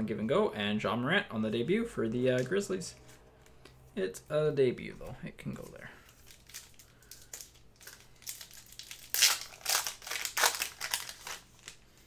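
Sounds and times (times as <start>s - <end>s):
foil wrapper crinkling: 6.0s - 12.0s.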